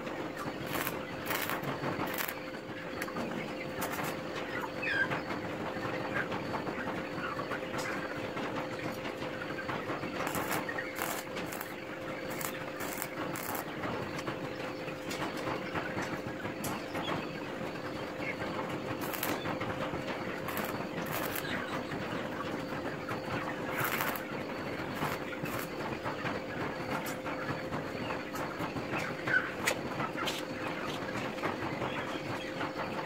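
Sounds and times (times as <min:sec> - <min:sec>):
constant hum: 0:00.0 - 0:33.0
welding arc crackling: 0:00.5 - 0:02.4, 0:03.8 - 0:04.1, 0:10.2 - 0:13.7, 0:19.0 - 0:19.4, 0:20.4 - 0:21.6, 0:23.7 - 0:24.3, 0:25.0 - 0:25.7.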